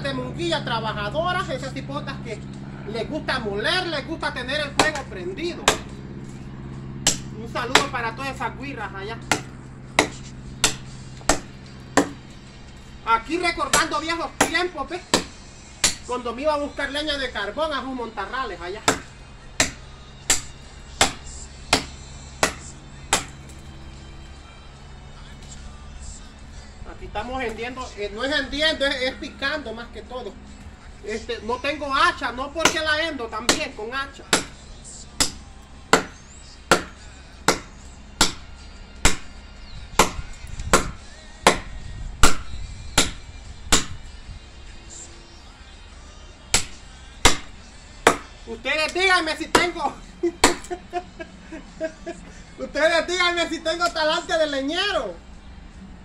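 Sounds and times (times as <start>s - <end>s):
machete chopping branch: 4.3s - 6.4s, 7.0s - 8.5s, 9.2s - 12.8s, 13.4s - 16.2s, 18.8s - 23.8s, 32.6s - 44.2s, 46.5s - 50.8s.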